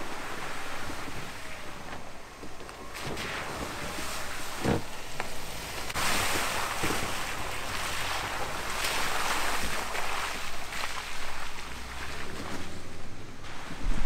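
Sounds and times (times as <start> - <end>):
tyres splashing through mud puddles: 0.0 - 14.0.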